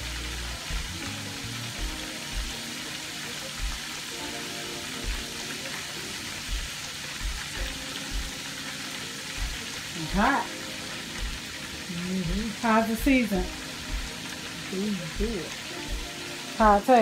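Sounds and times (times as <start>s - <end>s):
music with bass beat: 0.0s - 5.6s, 6.4s - 8.6s, 9.3s - 10.3s, 11.2s - 11.5s, 12.2s - 14.4s, 15.1s - 16.8s
frying grease sizzling: 0.0s - 17.0s.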